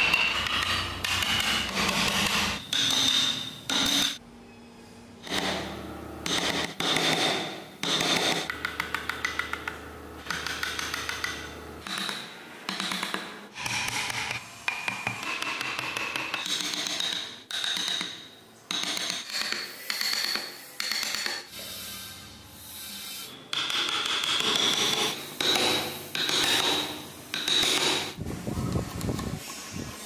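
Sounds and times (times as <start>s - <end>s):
chisel scraping wood: 0.0s - 4.2s.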